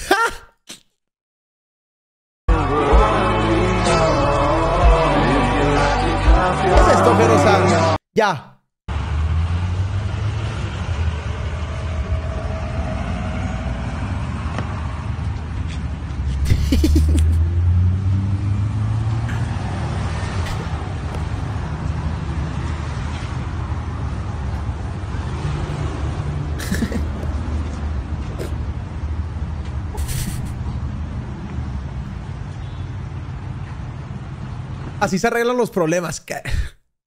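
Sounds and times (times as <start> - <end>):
cars driving past: 8.9 - 35.0.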